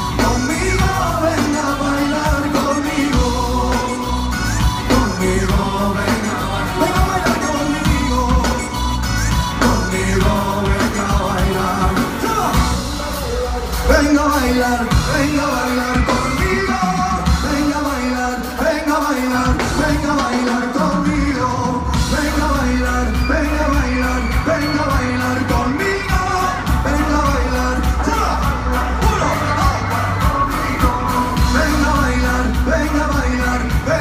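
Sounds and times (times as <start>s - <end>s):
live pop band playing: 0.0s - 34.0s
man singing: 0.0s - 34.0s.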